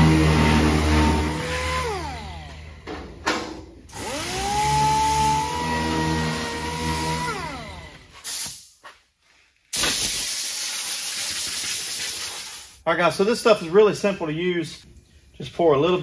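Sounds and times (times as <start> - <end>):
air sander whining: 0.0 - 3.2, 3.9 - 8.3.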